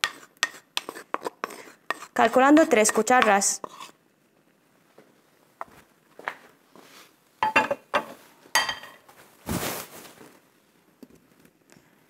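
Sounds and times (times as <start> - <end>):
wooden spoon clinking on clay bowl: 7.4 - 9.0.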